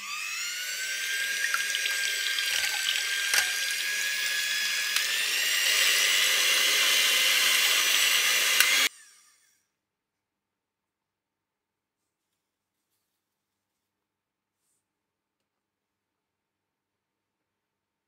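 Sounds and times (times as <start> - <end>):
electric hand mixer whirring: 0.0 - 9.5
mixer clicks: 1.2 - 6.2, 6.9 - 8.9.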